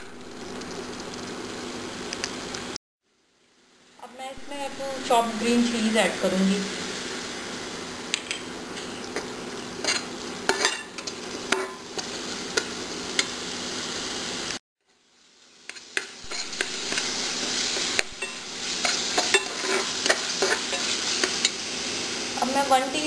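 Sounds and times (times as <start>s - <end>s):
sauce sizzling in a metal pan: 0.0s - 23.0s
metal spatula scraping a pan: 9.8s - 13.3s, 15.7s - 21.6s.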